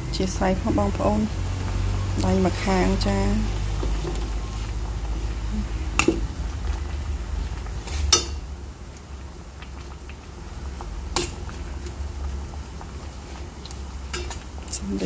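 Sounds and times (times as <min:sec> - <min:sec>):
broth simmering in a pot: 0:00.0 - 0:15.0
low steady rumble: 0:00.0 - 0:15.0
metal tongs clinking on pot: 0:08.1 - 0:08.4, 0:14.1 - 0:14.4.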